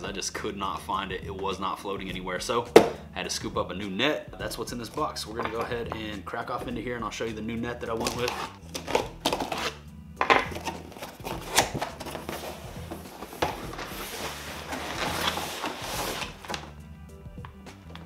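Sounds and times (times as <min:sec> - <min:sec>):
packaging rustling: 0:08.0 - 0:09.8, 0:10.4 - 0:16.8.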